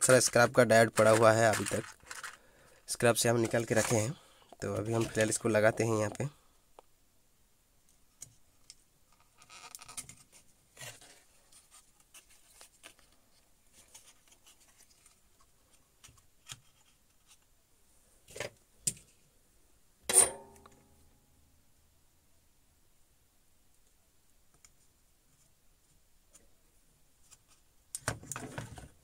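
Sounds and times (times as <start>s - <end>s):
hand tools rustling and scraping: 0.0s - 6.2s.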